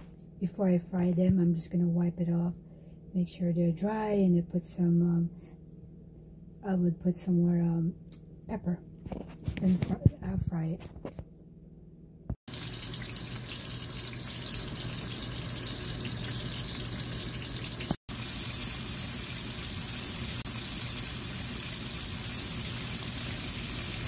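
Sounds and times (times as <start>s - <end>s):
oil sizzling: 12.5s - 24.0s.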